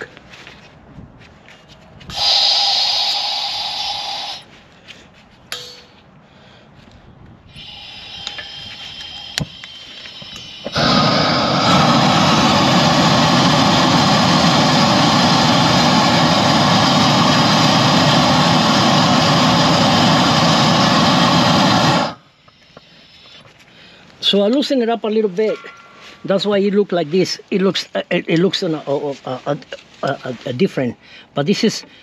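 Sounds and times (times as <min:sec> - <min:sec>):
faint gas hiss: 0:02.1 - 0:04.5, 0:07.5 - 0:24.6
gas torch flame rushing: 0:02.1 - 0:04.5, 0:07.5 - 0:22.2
torch click: 0:07.6 - 0:13.5.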